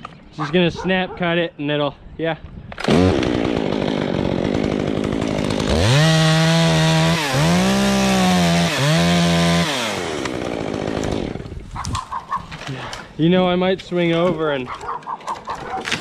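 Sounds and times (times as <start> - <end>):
chainsaw cutting a limb: 2.8 - 13.1, 14.0 - 16.0.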